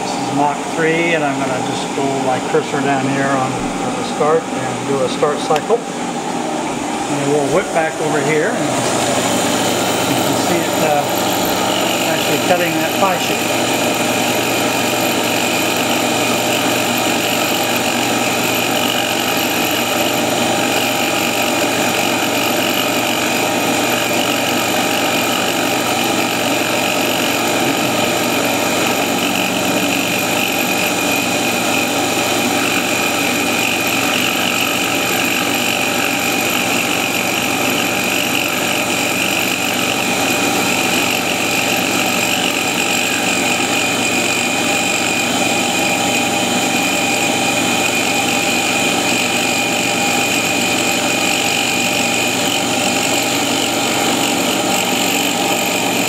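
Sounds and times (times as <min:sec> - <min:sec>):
milling machine cutting aluminium: 0:07.4 - 0:56.0.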